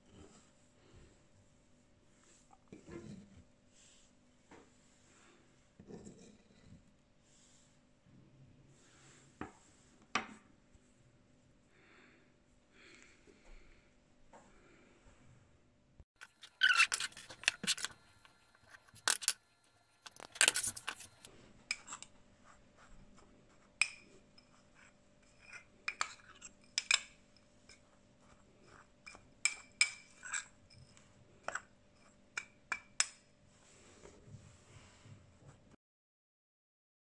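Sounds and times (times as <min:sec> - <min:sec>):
metal spoon clinking ceramic bowl: 0:16.2 - 0:22.0, 0:29.0 - 0:32.9.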